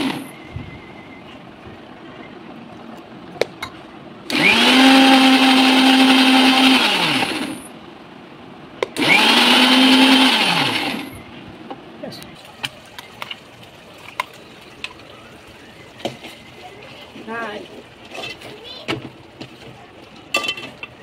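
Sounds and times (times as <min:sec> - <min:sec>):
mixer grinder motor humming: 0:00.0 - 0:00.3, 0:04.3 - 0:07.7, 0:08.8 - 0:11.3.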